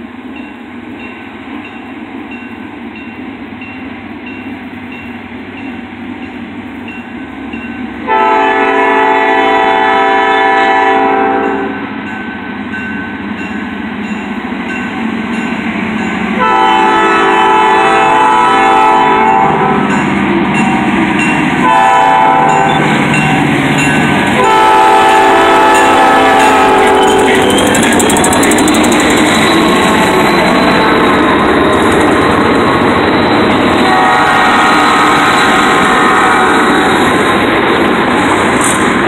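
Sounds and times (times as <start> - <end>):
train rumble: 0.0 - 39.0
crossing bell dinging: 0.4 - 8.0, 11.4 - 16.6, 19.3 - 34.2
locomotive horn blasts: 8.0 - 11.8, 16.4 - 20.1, 21.6 - 23.4, 24.4 - 27.5, 33.8 - 37.1.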